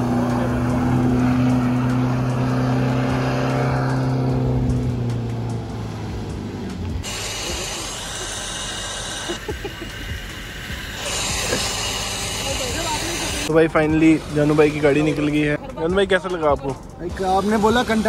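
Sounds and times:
motor running: 6.3 - 13.5.

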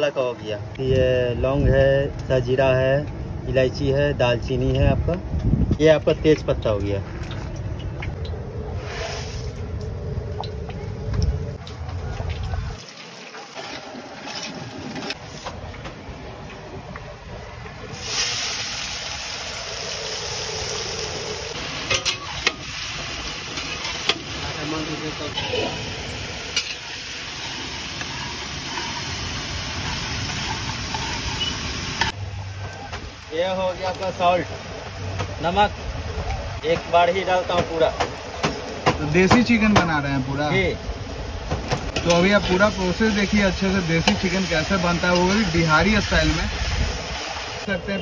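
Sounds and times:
low rumble: 7.0 - 12.8
spices sizzling in hot oil: 17.9 - 32.2, 41.9 - 48.0
spatula stirring in metal pan: 26.6 - 32.2.

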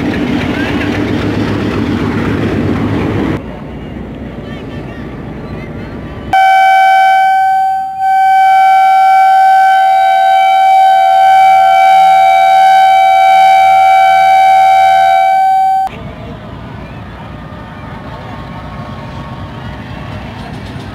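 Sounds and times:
locomotive horn blast: 6.4 - 15.9.

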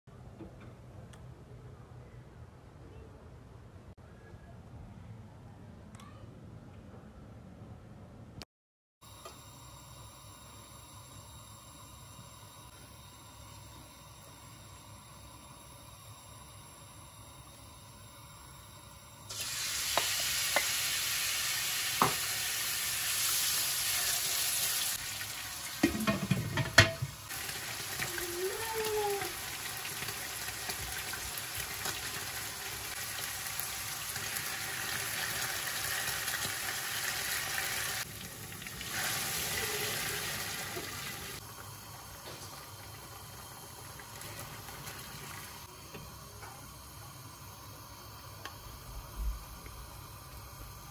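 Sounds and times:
meat sizzling in hot oil: 19.3 - 50.9.

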